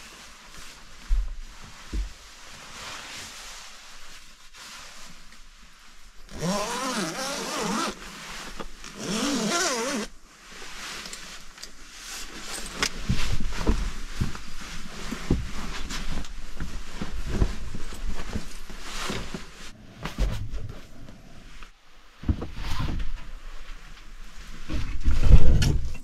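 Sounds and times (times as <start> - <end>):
fabric rustling: 0.0 - 24.7
zipper being pulled: 6.3 - 8.0, 8.9 - 10.1.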